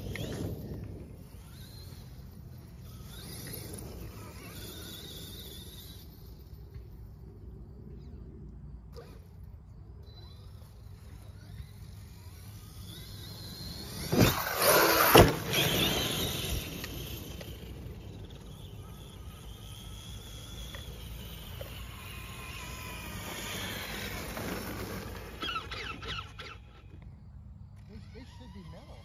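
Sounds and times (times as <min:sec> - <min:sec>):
electric motor whining: 0:00.0 - 0:29.0
toy truck landing knocks: 0:14.0 - 0:16.1.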